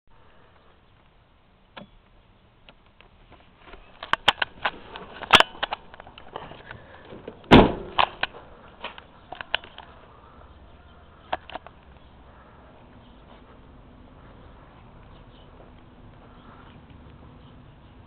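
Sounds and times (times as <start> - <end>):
loud door thump: 7.5 - 8.0.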